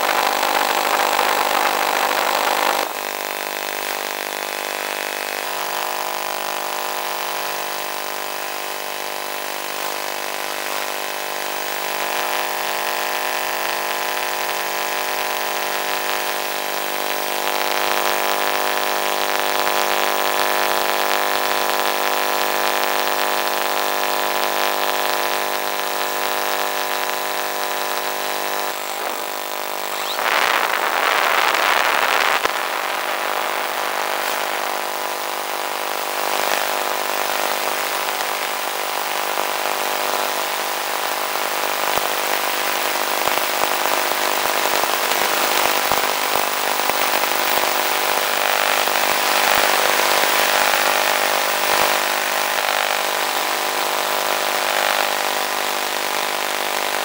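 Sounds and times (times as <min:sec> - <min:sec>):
model plane motor buzzing: 0:00.0 - 0:03.0, 0:28.6 - 0:32.5.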